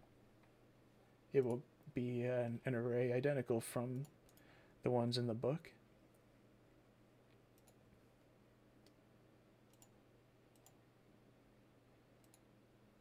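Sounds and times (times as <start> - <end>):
faint low hum: 0.0 - 13.0
computer mouse clicks: 7.6 - 7.8, 9.7 - 10.8, 12.2 - 12.5.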